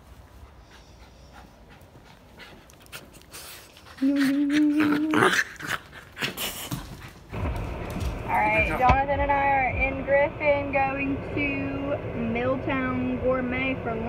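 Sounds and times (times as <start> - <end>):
puppy drawn-out vocal sound: 3.9 - 6.8.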